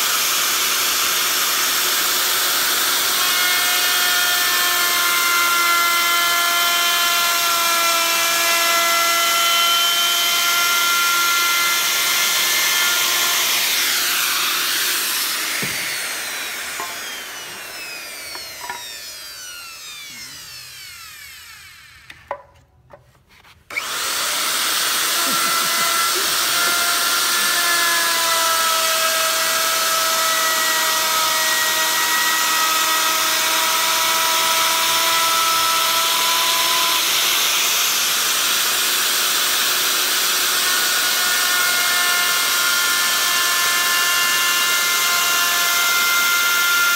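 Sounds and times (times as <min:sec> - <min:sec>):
electric router cutting wood: 0:00.0 - 0:22.4, 0:23.7 - 0:46.9
router winding down whine: 0:00.0 - 0:22.4, 0:23.7 - 0:46.9
knocks: 0:15.5 - 0:16.0.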